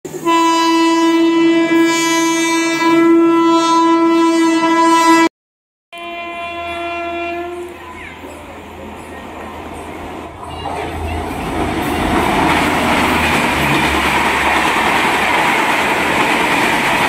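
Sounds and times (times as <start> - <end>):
locomotive horn blowing: 0.1 - 5.3, 5.9 - 7.8.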